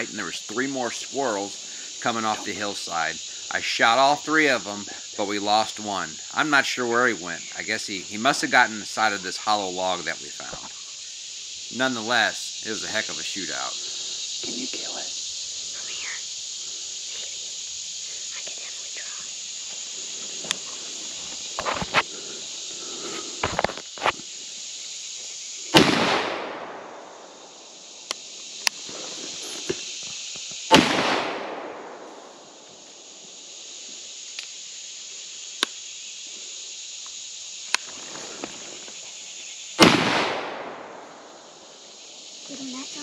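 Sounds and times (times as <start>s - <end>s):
high insect chorus: 0.0s - 43.0s
shotgun shots with echo: 25.8s - 27.0s, 30.7s - 32.0s, 39.8s - 41.0s.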